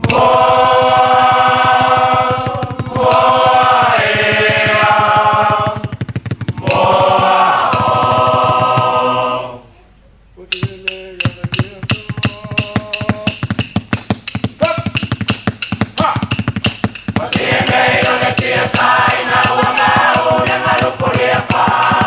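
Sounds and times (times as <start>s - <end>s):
choir singing a cappella: 0.0s - 5.9s, 6.6s - 9.7s, 17.2s - 22.0s
rhythmic hand claps: 0.0s - 9.3s, 10.5s - 22.0s
single voice singing: 10.4s - 13.4s, 17.2s - 22.0s.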